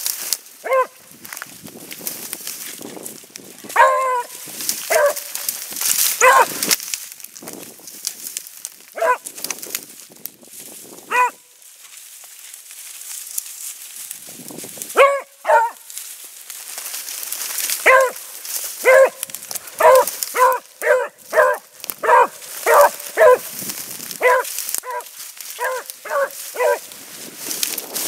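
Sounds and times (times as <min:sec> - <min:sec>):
dog barking: 0:00.6 - 0:01.0, 0:03.7 - 0:05.5, 0:06.2 - 0:06.6, 0:09.0 - 0:09.2, 0:11.1 - 0:11.5, 0:15.0 - 0:15.9, 0:17.8 - 0:18.2, 0:18.8 - 0:23.5, 0:24.2 - 0:26.9.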